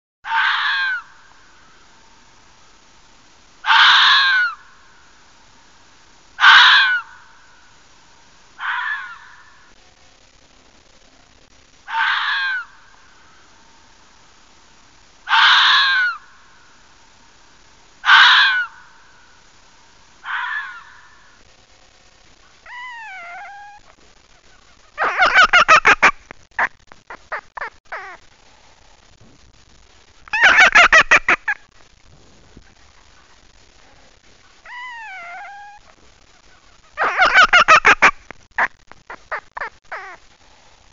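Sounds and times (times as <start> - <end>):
fox screaming: 0.2 - 1.2, 3.6 - 4.7, 6.4 - 7.3, 8.6 - 9.6, 11.8 - 12.8, 15.3 - 16.3, 18.0 - 18.9, 20.2 - 21.3, 22.6 - 24.0, 34.6 - 36.0, 37.0 - 38.1.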